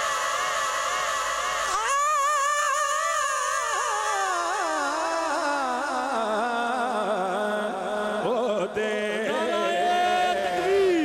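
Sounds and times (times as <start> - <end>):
man singing into microphone: 1.7 - 11.0.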